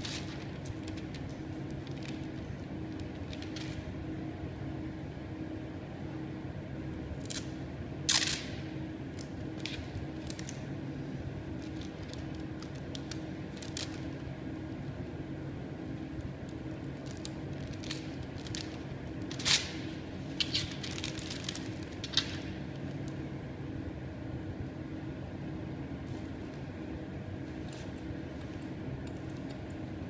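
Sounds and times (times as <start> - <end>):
plastic film crackling: 0.0 - 3.8, 11.6 - 14.2, 16.5 - 23.2
low room hum: 0.0 - 30.0.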